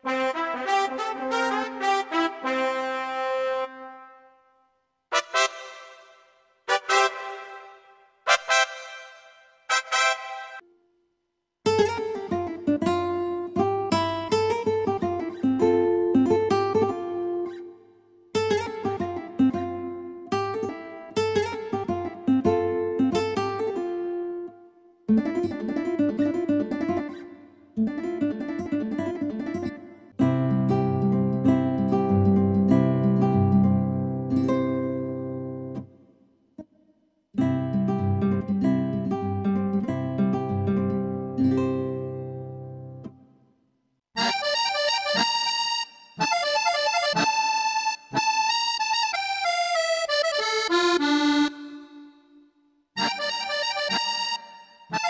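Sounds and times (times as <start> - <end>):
keyboard plucked guitar phrases: 0.0 - 4.2, 5.1 - 10.8, 11.7 - 36.0, 37.4 - 43.3, 44.2 - 55.0
keyboard playing a melody: 5.1 - 10.7, 44.2 - 52.4, 53.0 - 55.0.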